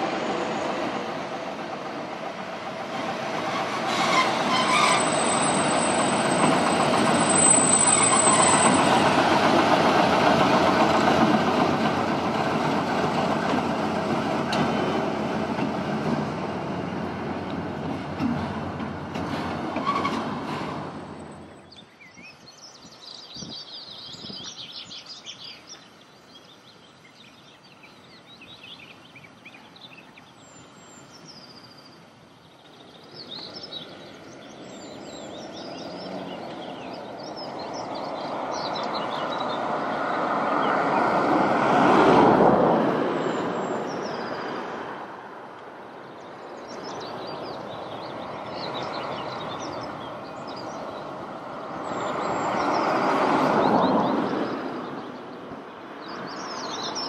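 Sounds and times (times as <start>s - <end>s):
diesel locomotive approaching: 0.0s - 21.9s, 32.6s - 57.0s
birds chirping: 46.0s - 51.2s.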